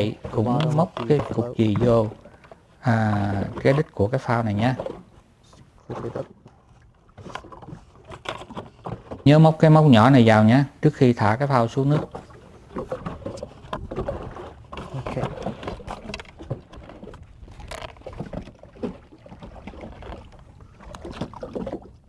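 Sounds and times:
fishing tackle knocks and clicks: 0.0 - 2.6, 11.9 - 19.0.

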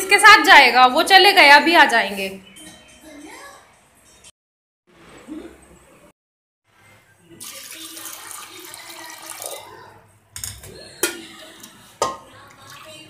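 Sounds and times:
water pouring into a pot: 7.4 - 10.0.

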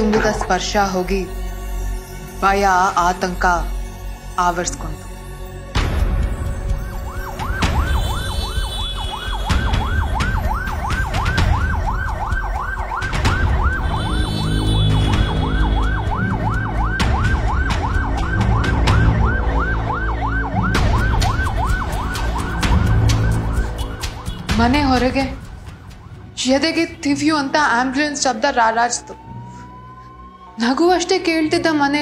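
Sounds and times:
ambulance siren yelping: 6.4 - 32.0.

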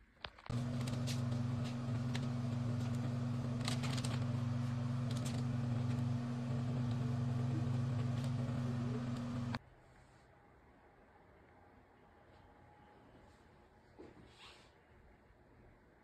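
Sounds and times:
low electric hum: 0.5 - 9.6.

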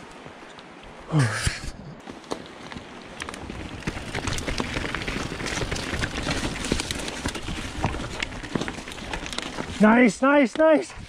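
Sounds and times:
bike clattering and rattling: 2.0 - 10.8
tyres crunching over rock: 2.0 - 10.8.

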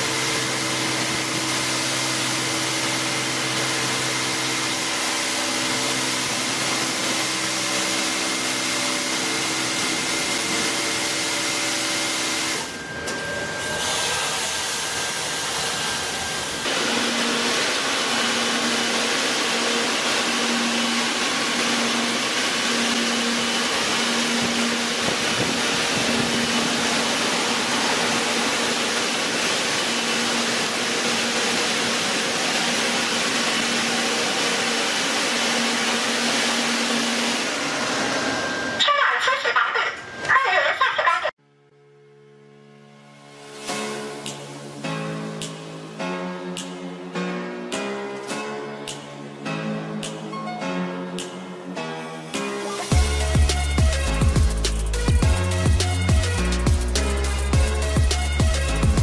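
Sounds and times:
high-pressure water spray hissing: 0.0 - 12.7, 13.6 - 37.9
motor hum: 0.0 - 38.8
air blowers rushing: 0.0 - 38.9.

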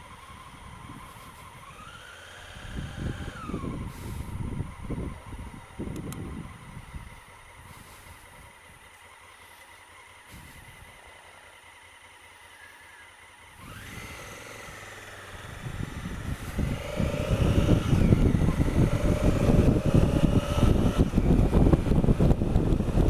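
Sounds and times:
wind buffeting microphone: 0.0 - 8.8, 13.6 - 23.0
motorcycle engine accelerating: 0.0 - 23.0.

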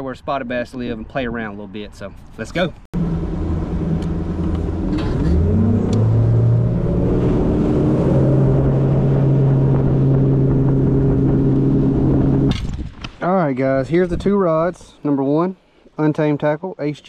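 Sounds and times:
outboard motor accelerating: 3.0 - 12.6.

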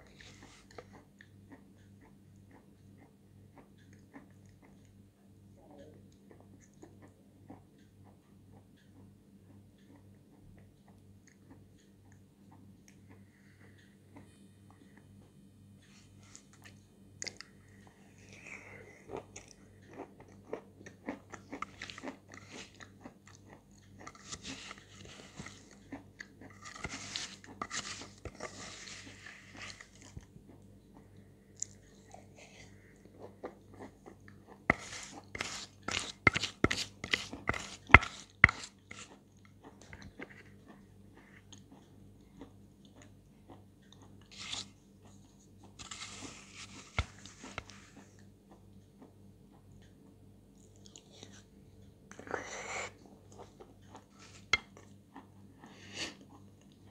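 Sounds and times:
chewing and crunching chalk: 15.8 - 49.2, 49.8 - 56.9.

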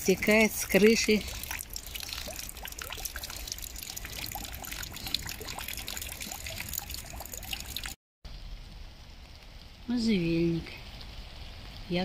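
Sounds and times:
water dripping into rain barrel: 0.0 - 8.0
steady hiss of rain: 8.3 - 12.0.

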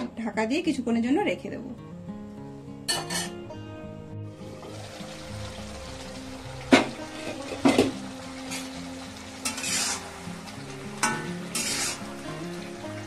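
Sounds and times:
curry sizzling in a pan: 4.3 - 13.0.

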